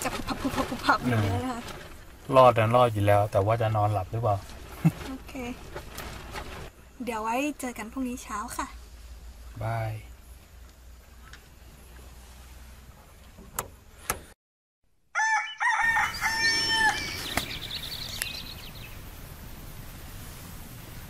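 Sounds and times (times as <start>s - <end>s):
rooster crowing: 15.1s - 17.8s
high bird calls: 15.3s - 19.0s.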